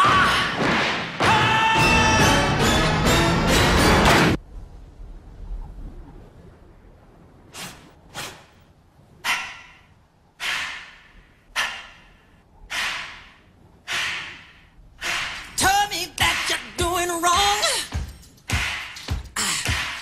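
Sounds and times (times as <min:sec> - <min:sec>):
heavy breathing: 0:10.4 - 0:15.6
voice: 0:15.6 - 0:17.9.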